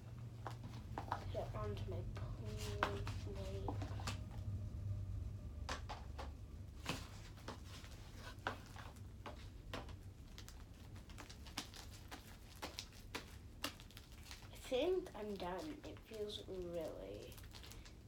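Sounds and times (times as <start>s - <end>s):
sticky slime clicks and crackles: 10.2s - 14.5s.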